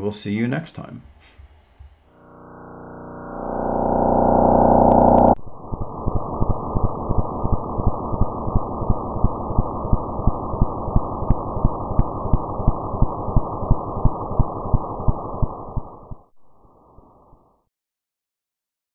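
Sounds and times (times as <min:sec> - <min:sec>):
steady thumping pulse: 0:01.8 - 0:16.3
low rumbling noise: 0:02.1 - 0:16.3.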